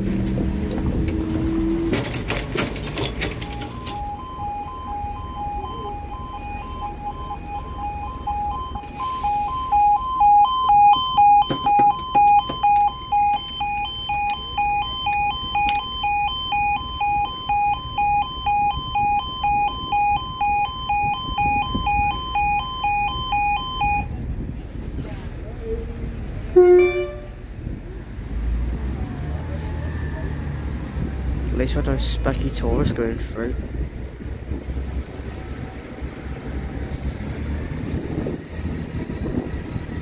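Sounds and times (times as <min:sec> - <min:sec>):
level crossing two-tone alarm: 0:03.2 - 0:24.1.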